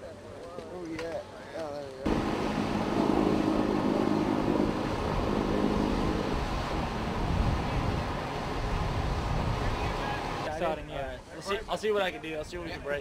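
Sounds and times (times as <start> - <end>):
vehicle engines rumbling: 2.1 - 10.5.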